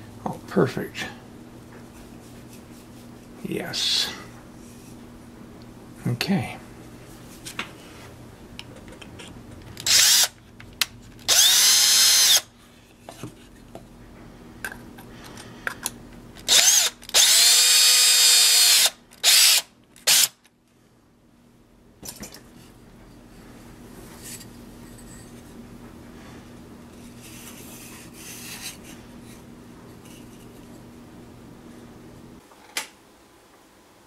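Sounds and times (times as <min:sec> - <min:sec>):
cordless drill whining: 0:09.8 - 0:10.3, 0:11.3 - 0:12.4, 0:16.5 - 0:20.3
drill boring through hardboard: 0:09.8 - 0:10.3, 0:11.3 - 0:12.5, 0:16.5 - 0:20.3.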